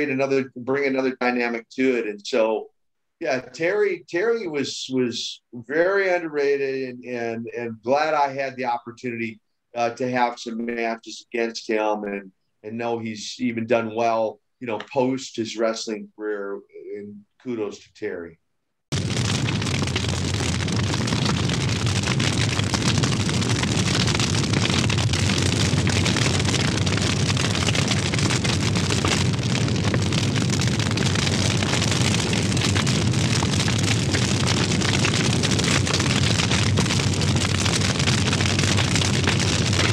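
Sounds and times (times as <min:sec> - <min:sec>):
rushing noise with crackle: 0:18.9 - 0:39.9.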